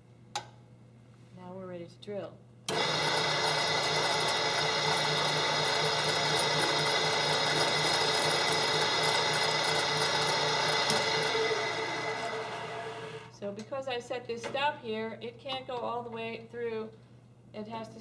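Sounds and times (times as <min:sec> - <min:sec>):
drill press boring wood: 0:02.7 - 0:13.3.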